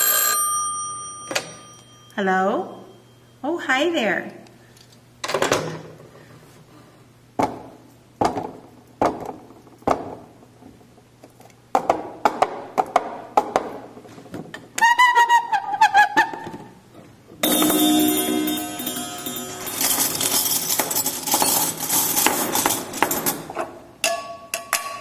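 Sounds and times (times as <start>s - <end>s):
wavering high tone: 17.4s - 20.2s.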